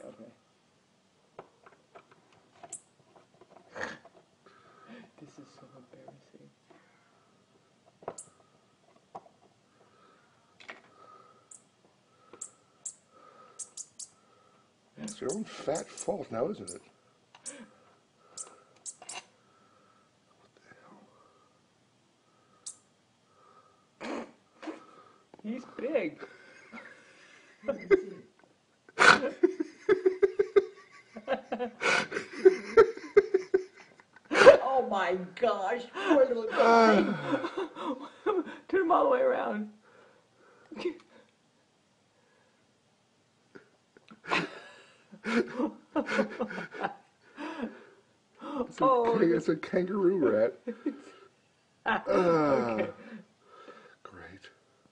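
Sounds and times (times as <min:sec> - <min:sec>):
rat squeaking: 0:08.2 - 0:08.4, 0:13.6 - 0:14.2, 0:15.0 - 0:16.8, 0:18.4 - 0:19.3
person laughing: 0:27.6 - 0:28.3, 0:29.0 - 0:34.6, 0:36.5 - 0:38.6, 0:45.2 - 0:47.6, 0:52.1 - 0:53.1.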